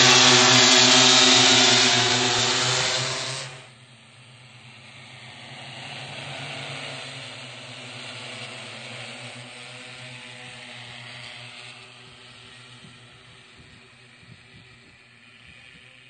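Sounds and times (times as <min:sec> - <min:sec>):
drone rotors humming: 0:00.0 - 0:16.0.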